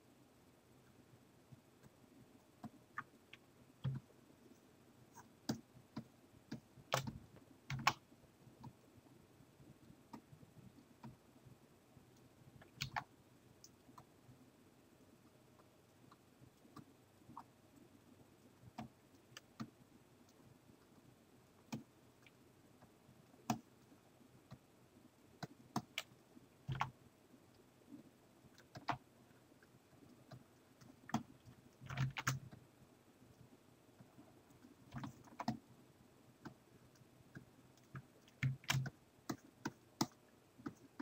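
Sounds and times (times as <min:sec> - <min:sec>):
computer keyboard clicks: 0:05.5 - 0:08.0, 0:12.6 - 0:14.1, 0:25.4 - 0:26.9, 0:28.6 - 0:29.0, 0:30.3 - 0:32.6, 0:34.9 - 0:35.6, 0:37.8 - 0:41.0.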